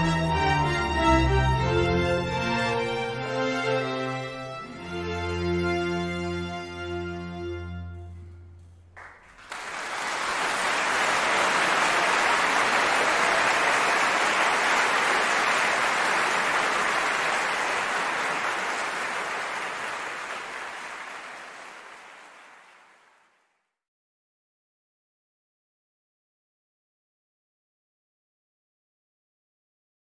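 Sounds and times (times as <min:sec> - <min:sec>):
audience applauding: 0:09.0 - 0:23.4.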